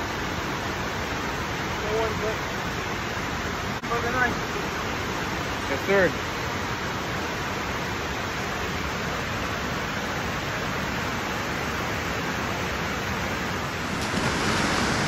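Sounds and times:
water pouring over a dam: 10.5 - 15.0.

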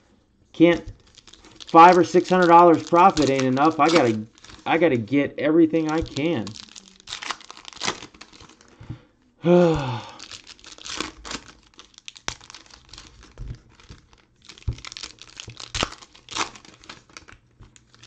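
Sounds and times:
foil wrappers crinkling: 0.6 - 8.8, 9.8 - 18.0
cards tapping: 1.7 - 4.6, 5.7 - 6.5.

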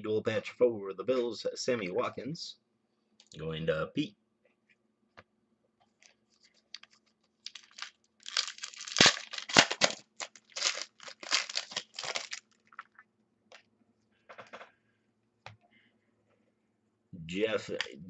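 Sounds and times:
foil wrapper tearing and crinkling: 6.5 - 12.9.

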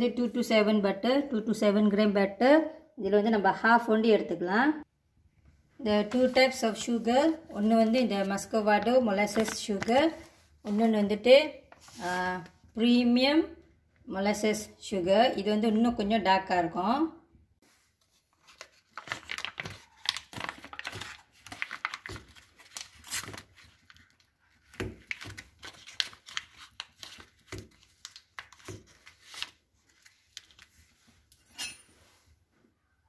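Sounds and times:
paper wrapper crinkling and tearing: 18.1 - 31.0.

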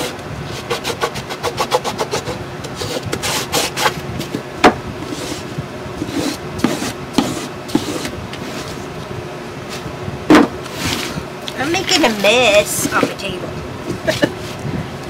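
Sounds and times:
sanding block scratching wood: 0.0 - 4.4, 5.0 - 8.8.

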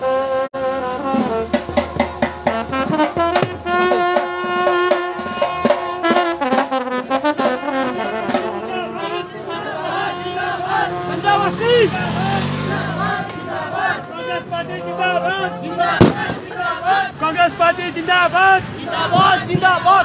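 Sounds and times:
brass instruments playing: 0.0 - 20.0
drum beats: 0.6 - 9.2, 15.8 - 17.0, 19.0 - 20.0.

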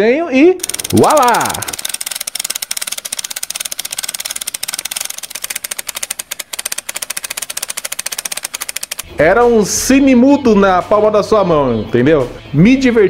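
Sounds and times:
film projector clattering: 0.6 - 9.2.

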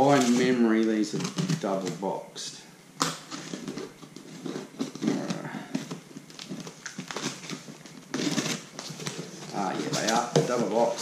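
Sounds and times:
cardboard rasp: 3.3 - 11.0.

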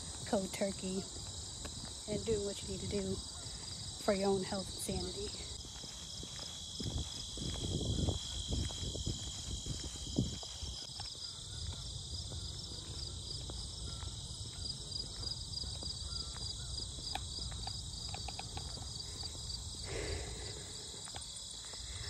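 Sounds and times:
footsteps on paved trail: 0.0 - 22.0
insects buzzing and trilling: 0.0 - 22.0
person panting: 19.0 - 22.0.

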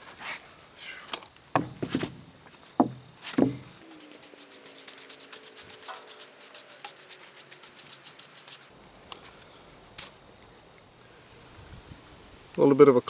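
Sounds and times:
wooden slab thump: 1.6 - 2.2, 2.8 - 3.7
broom sweeping sawdust: 3.2 - 9.4.

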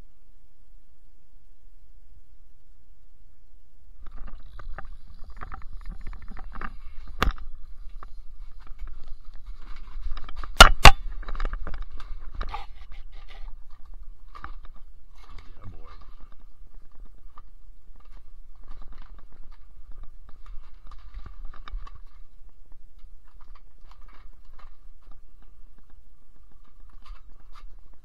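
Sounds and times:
objects scraping and clicking: 4.0 - 28.0.

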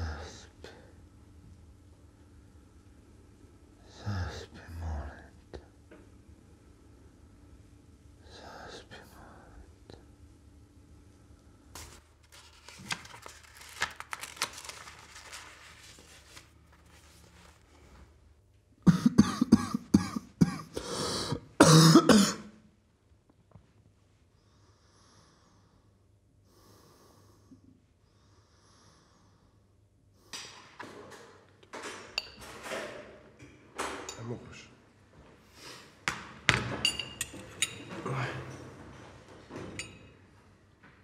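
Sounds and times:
man coughing: 18.8 - 22.6.

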